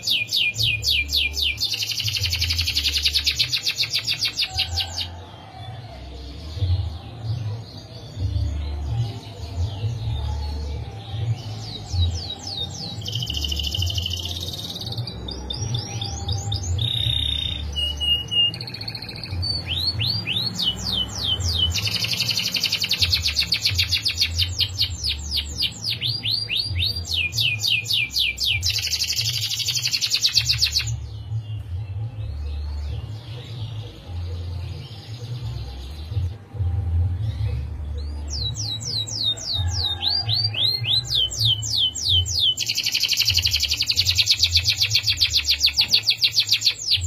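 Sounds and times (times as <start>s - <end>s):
canary singing trills: 0.0s - 47.0s.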